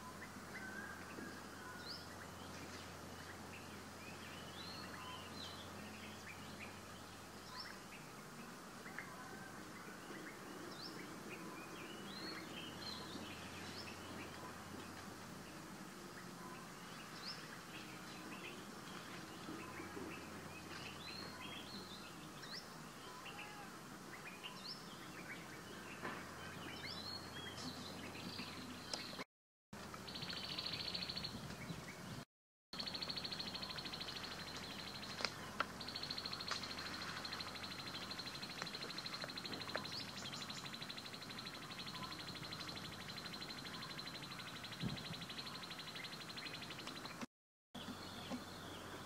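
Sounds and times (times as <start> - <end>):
small birds chirping: 0.0 - 32.2, 32.8 - 49.0.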